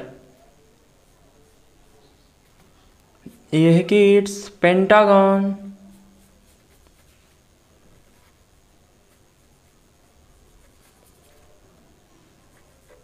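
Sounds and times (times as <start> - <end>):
paintbrush brushing on paper: 5.8 - 13.0.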